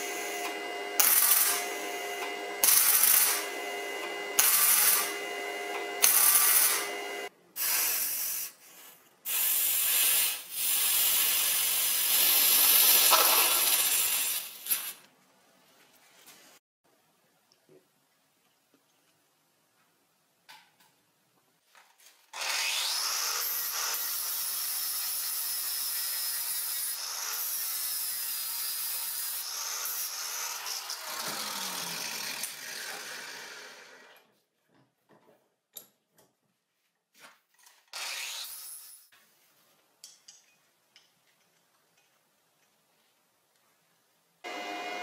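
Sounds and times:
angle grinder on steel: 0:00.0 - 0:08.1, 0:22.4 - 0:34.2.

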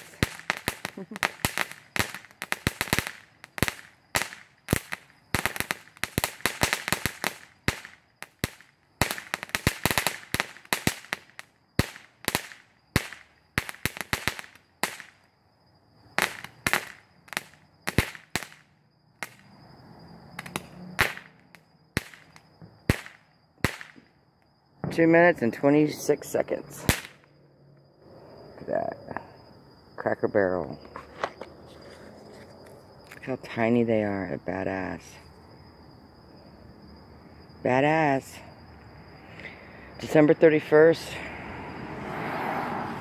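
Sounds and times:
firework crackling pops: 0:00.0 - 0:15.3, 0:16.2 - 0:19.5, 0:20.4 - 0:24.1, 0:26.8 - 0:27.3.

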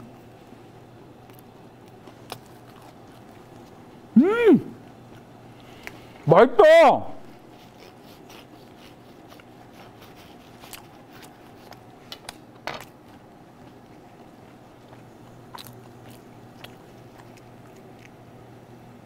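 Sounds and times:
low room hum: 0:00.0 - 0:19.0
bread crackling being cut and chewed: 0:01.1 - 0:04.1, 0:07.4 - 0:18.6.

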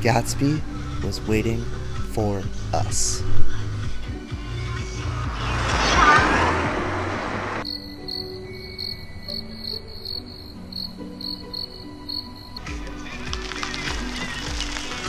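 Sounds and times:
soft low sustained music: 0:00.0 - 0:07.0
noisy whoosh: 0:04.4 - 0:07.7
crickets chirping: 0:07.2 - 0:14.8.

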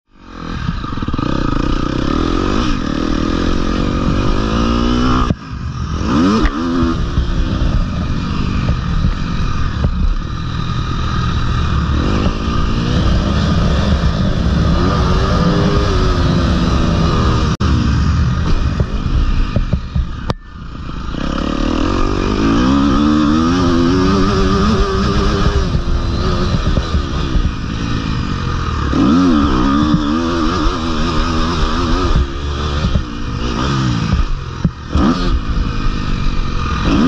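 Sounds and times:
motocross engine revving: 0:00.2 - 0:37.0.

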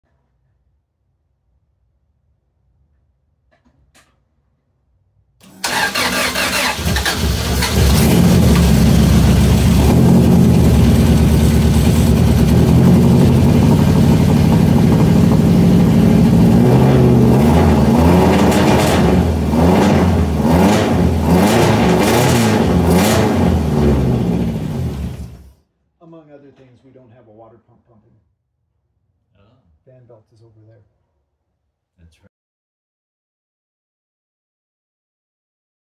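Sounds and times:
car engine starting and revving: 0:05.4 - 0:25.5.

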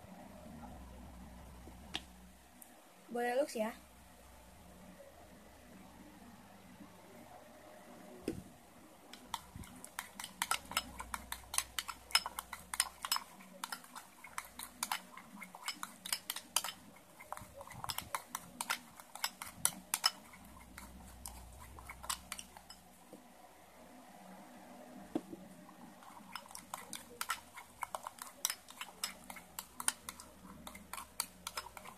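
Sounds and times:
slime mixture being stirred: 0:09.0 - 0:23.0, 0:25.7 - 0:31.9
metal spoon clinking against glass bowl: 0:10.2 - 0:16.8.

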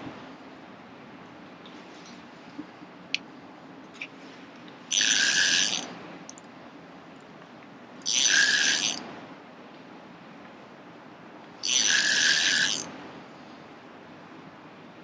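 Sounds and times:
fishing reel whirring: 0:04.9 - 0:05.9, 0:08.0 - 0:09.0, 0:11.6 - 0:12.9.

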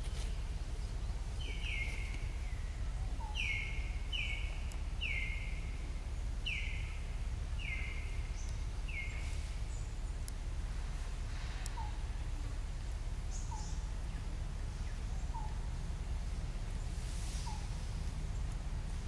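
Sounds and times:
low outdoor rumble: 0:00.0 - 0:19.0
bird whistled calls: 0:01.4 - 0:05.8, 0:06.4 - 0:07.0, 0:07.6 - 0:09.4, 0:13.3 - 0:13.9, 0:14.9 - 0:15.6, 0:17.3 - 0:17.9.

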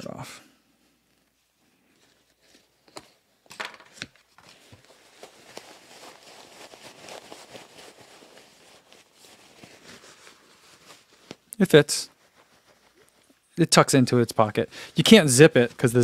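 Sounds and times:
jacket fabric rustling: 0:00.7 - 0:13.5.

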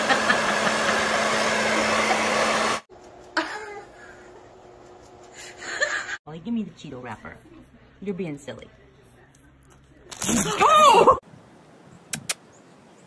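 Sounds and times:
electric appliance motor whirring: 0:00.0 - 0:02.9.

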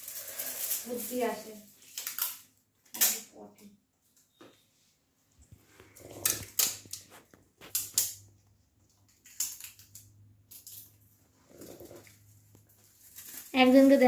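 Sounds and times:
small objects clicking and rustling: 0:00.0 - 0:03.3, 0:06.1 - 0:14.0.

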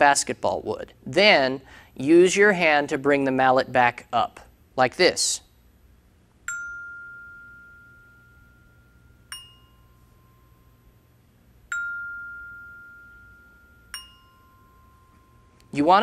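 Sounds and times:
glockenspiel bars ringing: 0:06.5 - 0:10.9, 0:11.7 - 0:15.8.

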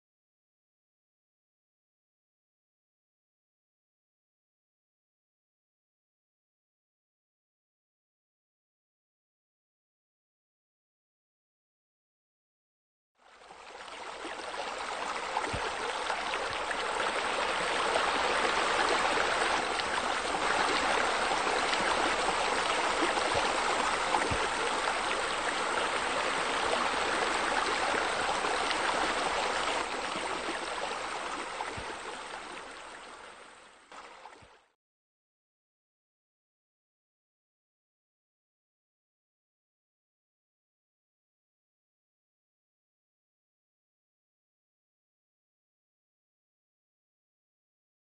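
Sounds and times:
water running and splashing: 0:13.8 - 0:32.8.

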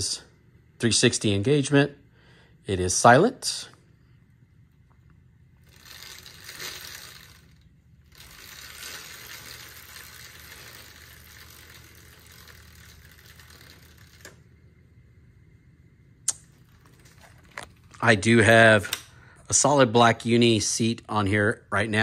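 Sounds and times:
bicycle chain whirring: 0:05.4 - 0:14.9, 0:16.5 - 0:18.2.

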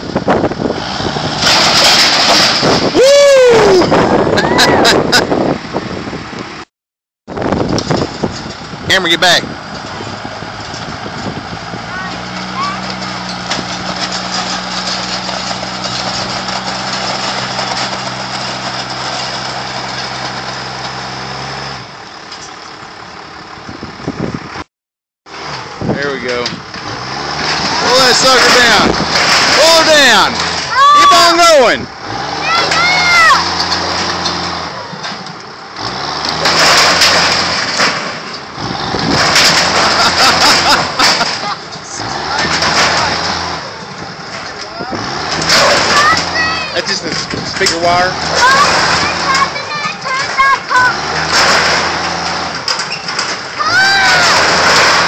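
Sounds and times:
vehicle engine revving: 0:00.0 - 0:03.0, 0:07.3 - 0:22.0, 0:25.3 - 0:55.0
vehicle engine idling: 0:21.8 - 0:24.6.

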